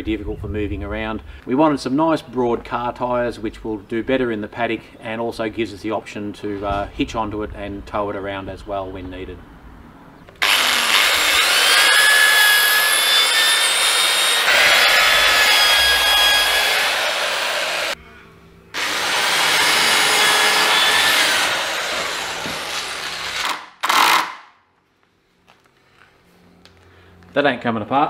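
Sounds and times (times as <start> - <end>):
electric drill boring into timber: 10.4 - 18.0, 18.8 - 24.4.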